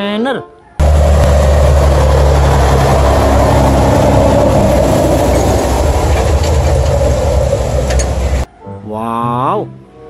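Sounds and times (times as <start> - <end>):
road and tyre noise: 0.6 - 8.5
diesel truck engine: 0.8 - 8.5.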